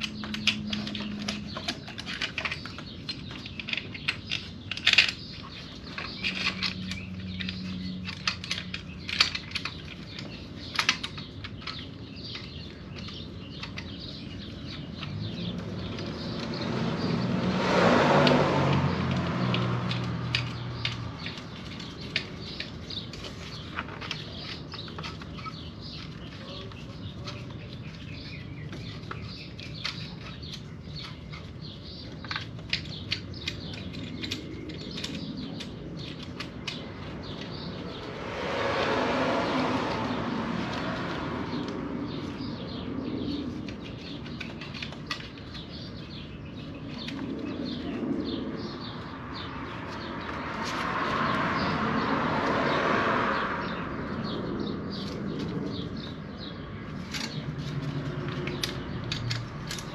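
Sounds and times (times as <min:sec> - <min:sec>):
hand tools clicking on metal: 0:00.0 - 0:17.3, 0:18.2 - 0:38.2, 0:39.5 - 0:51.8, 0:56.8 - 0:59.9
passing vehicle: 0:14.8 - 0:23.1, 0:33.4 - 0:59.9.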